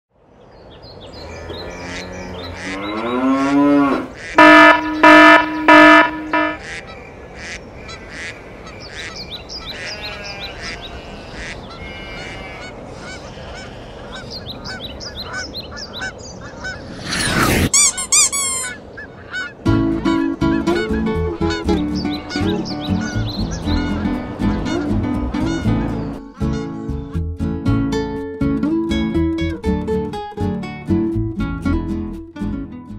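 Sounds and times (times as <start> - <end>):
loud cartoon honks: 3.8 - 6.8
cartoon rising pitch slide: 4.4 - 6.6, 16.7 - 18.8
short chirps and blips: 4.4 - 6.6
sweeping whoosh: 16.6 - 17.7.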